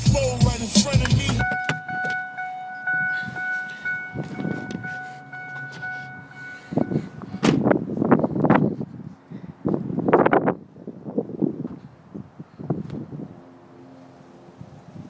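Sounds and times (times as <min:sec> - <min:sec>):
rapid electronic warning chime: 0:01.4 - 0:07.5
wind noise on microphone: 0:02.9 - 0:05.1, 0:06.2 - 0:13.5, 0:14.5 - 0:15.0.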